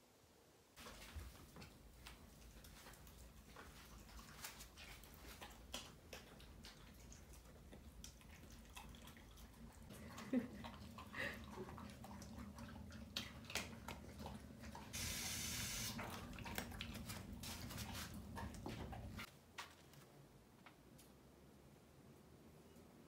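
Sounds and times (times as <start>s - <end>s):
dogs chewing: 0.8s - 19.3s
teeth and food clicking on bowls: 1.6s - 14.9s, 16.0s - 17.5s
burst of hiss: 15.0s - 16.0s.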